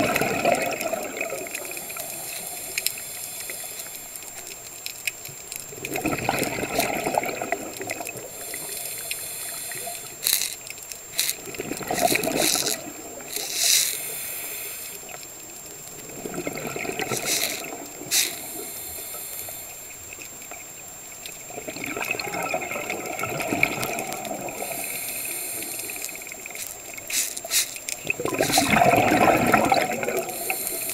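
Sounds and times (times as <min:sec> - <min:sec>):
bubbling exhalations: 0:00.0 - 0:02.5, 0:05.8 - 0:08.8, 0:11.1 - 0:14.2, 0:16.0 - 0:19.2, 0:21.5 - 0:30.9
regulator hissing inhalation: 0:00.6 - 0:04.2, 0:08.2 - 0:15.2, 0:17.0 - 0:20.0, 0:23.7 - 0:30.9.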